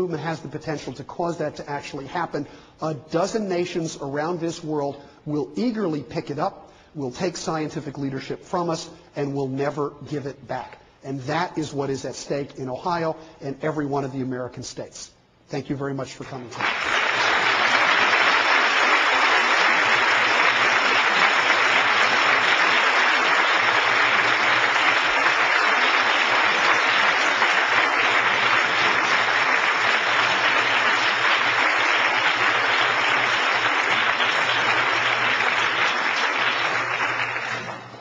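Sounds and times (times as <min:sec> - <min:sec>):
large audience applauding: 0:16.6 - 0:38.0.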